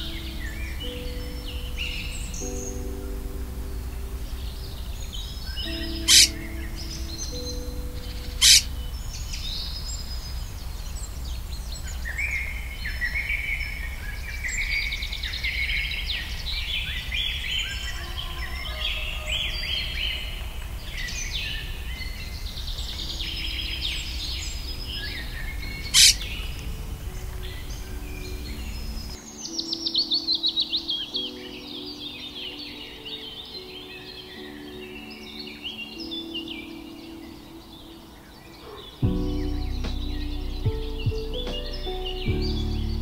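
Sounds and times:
songbirds chirping: 0.0s - 43.0s
low rumble: 39.0s - 43.0s.

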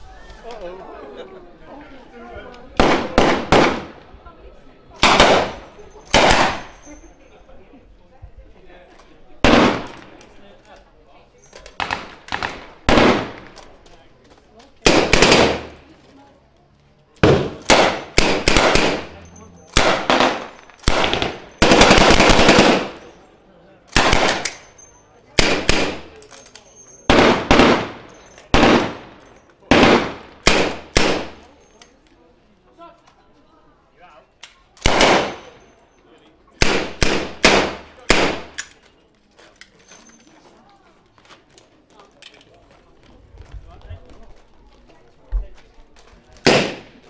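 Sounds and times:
machine gun firing: 2.8s - 3.9s, 11.8s - 13.4s, 14.8s - 15.7s, 17.2s - 19.1s, 19.8s - 23.0s, 24.0s - 24.5s, 27.1s - 28.0s, 28.6s - 29.1s, 29.7s - 31.3s, 34.8s - 35.5s, 46.4s - 46.8s
rifle gunshots with echo: 2.8s - 4.0s, 5.0s - 6.7s, 9.4s - 10.1s, 11.8s - 13.6s, 14.8s - 15.8s, 17.2s - 19.1s, 19.8s - 23.0s, 23.9s - 24.6s, 25.4s - 26.1s, 27.1s - 31.4s, 34.8s - 35.5s, 36.6s - 38.6s, 46.4s - 47.0s
machine gun bursts with echo: 19.8s - 23.0s.

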